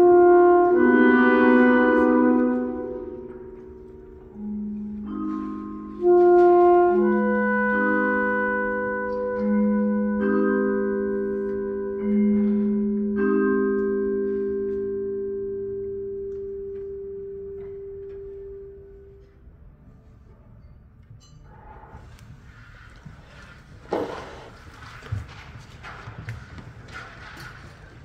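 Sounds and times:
wind ensemble music: 0.0s - 13.3s.

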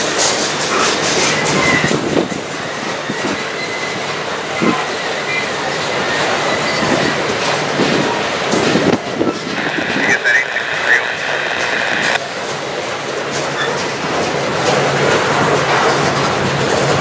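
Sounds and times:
train wheels clicking over rail joints: 0.0s - 9.5s, 12.2s - 17.0s
wheel squeal: 1.2s - 2.0s, 2.6s - 7.6s.

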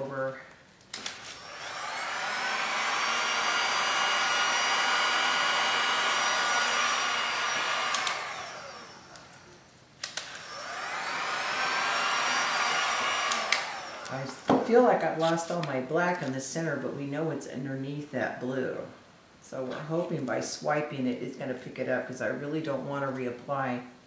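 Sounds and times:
heat gun fan blowing: 0.9s - 16.6s
heat gun switch click: 7.9s - 8.3s, 13.2s - 13.8s.

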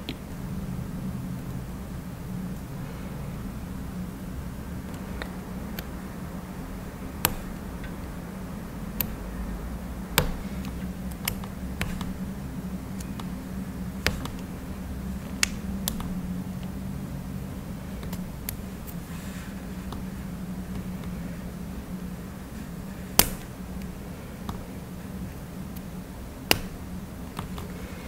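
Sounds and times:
steady low hum: 0.0s - 28.0s
clicks and taps of nail tools: 15.2s - 16.7s.

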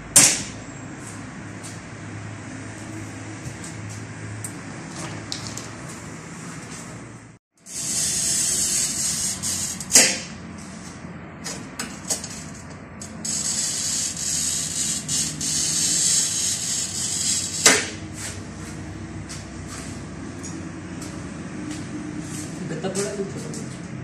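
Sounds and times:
glass cutter scratchy hiss: 7.6s - 10.2s, 13.2s - 18.0s.

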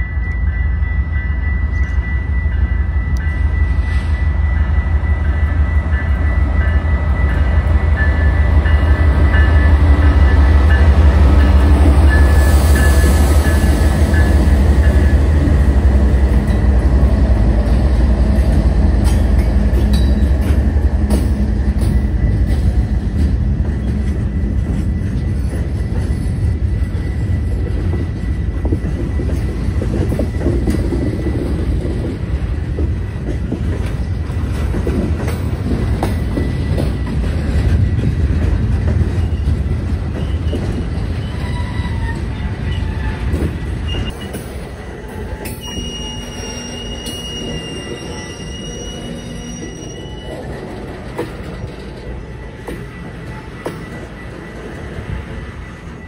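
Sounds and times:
freight train rumbling past: 0.0s - 56.0s
high wheel squeal: 39.1s - 44.5s, 45.2s - 56.0s.

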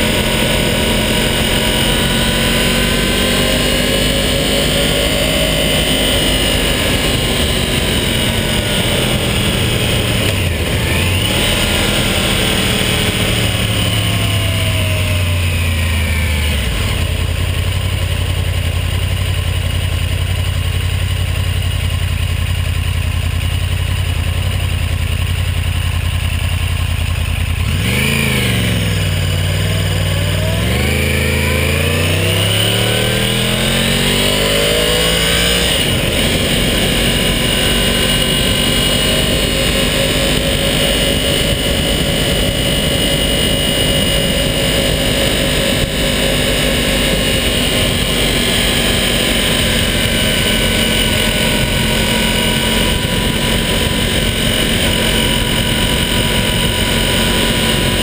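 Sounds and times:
wind noise: 0.0s - 17.6s, 27.9s - 58.0s
motorcycle engine revving: 0.0s - 58.0s
road noise: 0.0s - 58.0s.

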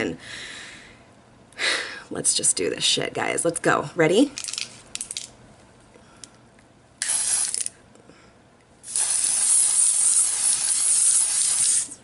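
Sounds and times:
aerosol can spraying: 7.0s - 7.7s, 8.8s - 12.0s.

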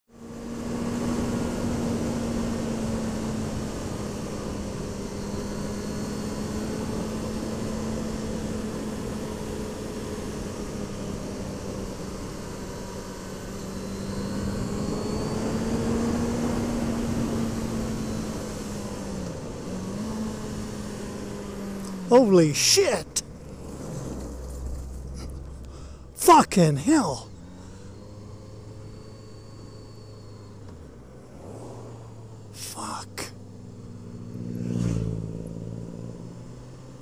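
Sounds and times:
motorcycle engine cruising: 33.4s - 37.0s.

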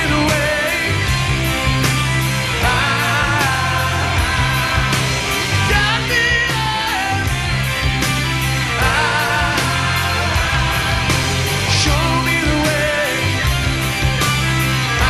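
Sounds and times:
person singing with vibrato: 0.0s - 1.2s, 2.4s - 7.5s, 8.6s - 13.5s
bass guitar: 0.0s - 15.0s.

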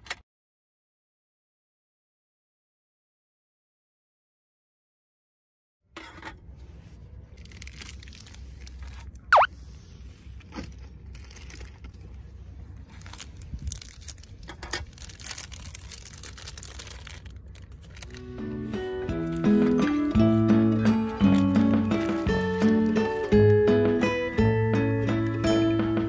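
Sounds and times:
plastic bag crinkling: 7.4s - 9.3s, 10.6s - 12.2s, 12.8s - 20.2s, 20.9s - 23.3s
wind rumble on microphone: 13.4s - 14.2s.

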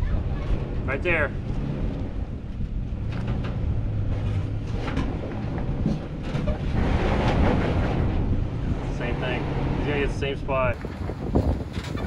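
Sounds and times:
truck engine crawling: 0.0s - 12.0s
wind buffeting microphone: 0.0s - 12.0s.

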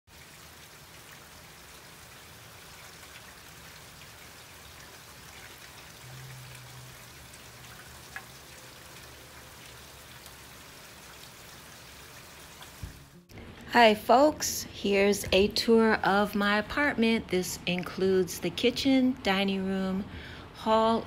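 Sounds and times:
steady rain falling: 0.1s - 13.3s
water drips: 0.1s - 13.3s.

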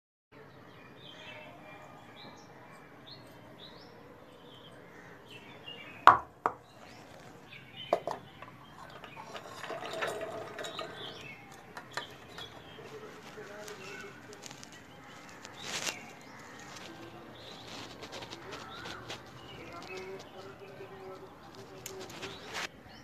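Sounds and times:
bowl clinking: 7.9s - 12.8s
steel bowl clanking: 8.0s - 13.2s
seeds poured into jar: 8.1s - 22.7s.

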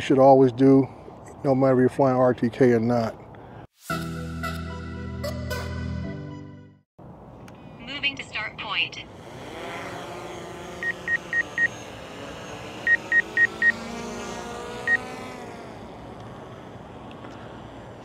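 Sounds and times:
drone propellers humming: 8.6s - 18.0s.

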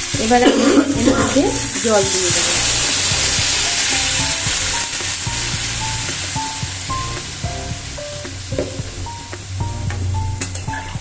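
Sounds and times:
light background music: 0.0s - 11.0s
water sizzling in hot oil: 0.0s - 11.0s.

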